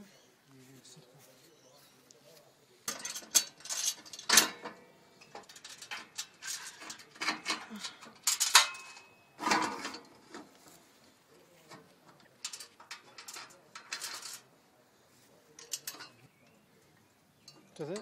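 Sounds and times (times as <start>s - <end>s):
metallic clanks and knocks: 2.9s - 10.5s, 11.7s - 14.4s, 15.6s - 16.3s.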